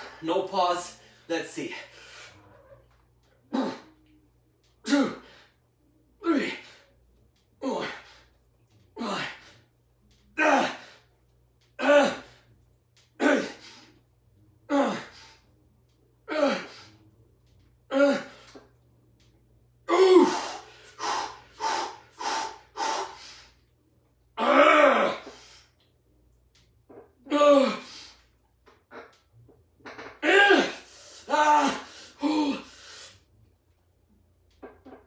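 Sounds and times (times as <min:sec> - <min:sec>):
man straining grunts: 0:03.5 - 0:03.9, 0:04.8 - 0:05.3, 0:06.2 - 0:06.8, 0:07.6 - 0:08.2, 0:09.0 - 0:09.5, 0:10.4 - 0:11.0, 0:11.8 - 0:12.4, 0:13.2 - 0:13.7, 0:14.7 - 0:15.2, 0:16.3 - 0:16.8, 0:17.9 - 0:18.4, 0:19.9 - 0:20.7, 0:24.4 - 0:25.3, 0:27.2 - 0:28.0, 0:30.2 - 0:32.7.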